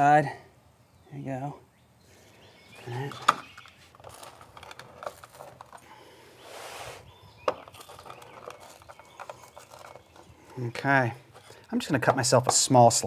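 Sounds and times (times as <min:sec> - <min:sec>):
small crackles: 0:02.8 - 0:06.2, 0:07.4 - 0:11.8.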